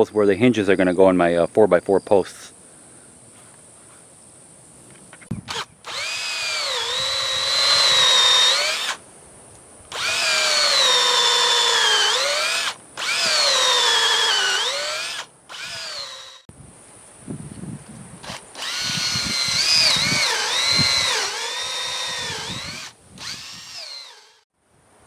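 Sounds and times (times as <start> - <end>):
cordless drill boring into wood: 5.5 - 9.0, 9.9 - 16.5, 18.2 - 24.4.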